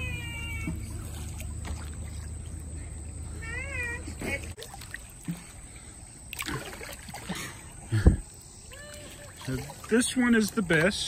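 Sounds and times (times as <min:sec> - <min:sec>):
cat meowing: 0:00.0 - 0:00.8.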